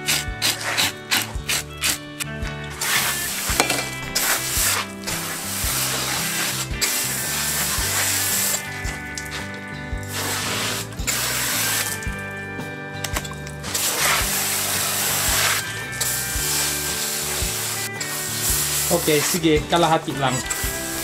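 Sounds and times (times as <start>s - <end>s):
background music with a beat: 0.0s - 21.0s
hose nozzle spraying water: 0.0s - 21.0s.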